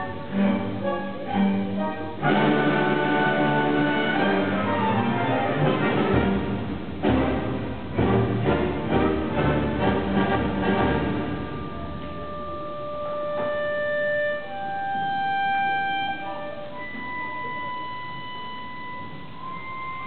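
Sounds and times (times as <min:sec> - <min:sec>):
solo woodwind held notes: 0:00.0 - 0:06.2, 0:10.2 - 0:20.0
orchestra playing: 0:00.0 - 0:20.0.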